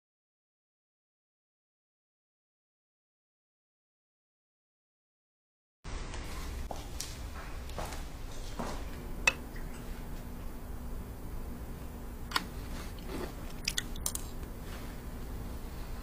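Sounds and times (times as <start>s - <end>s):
faint steady hum: 5.9s - 16.0s
chewing: 12.7s - 14.5s.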